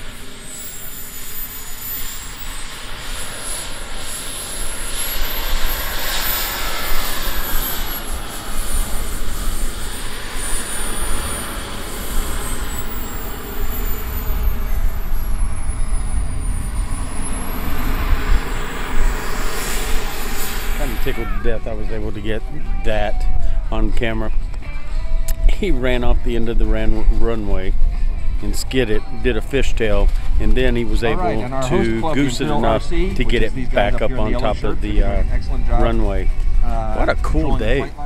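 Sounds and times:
model jet turbine whining: 0:00.0 - 0:24.3
low rumble: 0:00.0 - 0:38.0.

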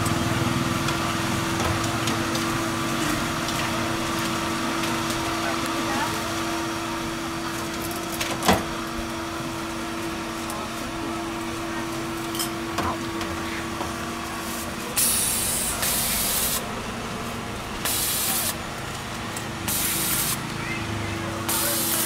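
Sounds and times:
hissing spray: 0:14.4 - 0:16.7, 0:17.8 - 0:18.6, 0:19.6 - 0:20.4, 0:21.5 - 0:22.0.

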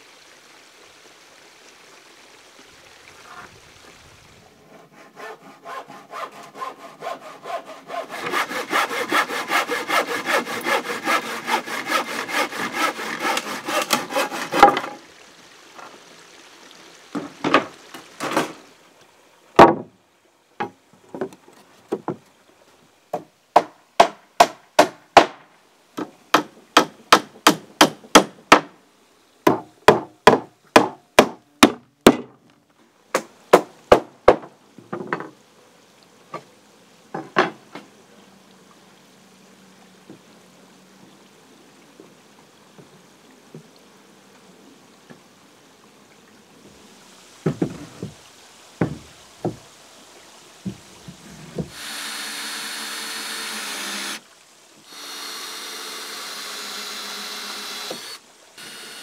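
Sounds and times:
wood knocks: 0:17.2 - 0:18.6, 0:19.6 - 0:20.0, 0:20.6 - 0:22.2, 0:33.2 - 0:35.3, 0:37.1 - 0:37.8, 0:47.4 - 0:48.2, 0:48.8 - 0:49.6
hammer nailing wooden boards: 0:26.3 - 0:28.7, 0:29.5 - 0:32.4.

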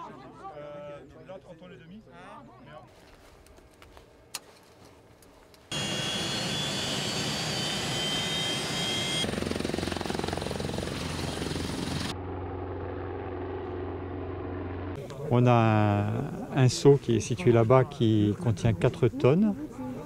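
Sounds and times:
helicopter rotor noise: 0:05.7 - 0:15.0
helicopter turbine whine: 0:05.7 - 0:18.2.

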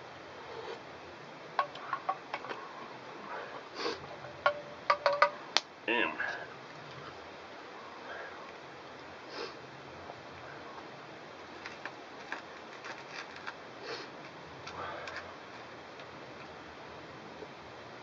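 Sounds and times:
background hiss: 0:00.0 - 0:18.0
man sniffing: 0:03.3 - 0:04.0, 0:09.3 - 0:09.6, 0:13.8 - 0:14.2.

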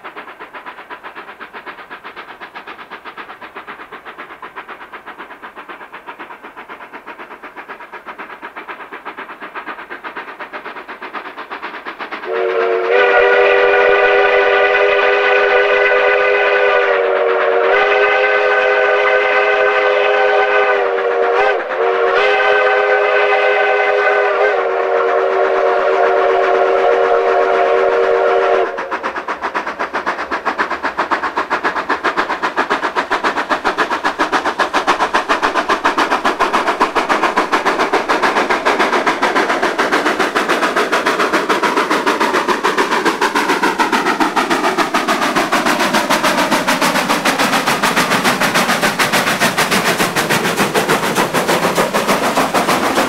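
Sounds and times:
locomotive exhaust chuffing: 0:00.0 - 0:53.0
steam whistle chime blasts: 0:12.3 - 0:28.7.

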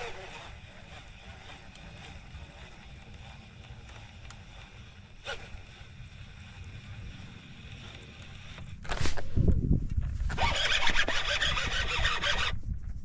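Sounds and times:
wind rumbling on microphone: 0:05.4 - 0:13.0.

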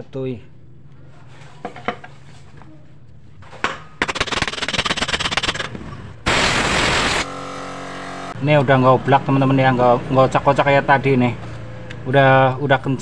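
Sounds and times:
steady hum with tones: 0:03.2 - 0:10.4
loud hiss: 0:06.3 - 0:07.3.

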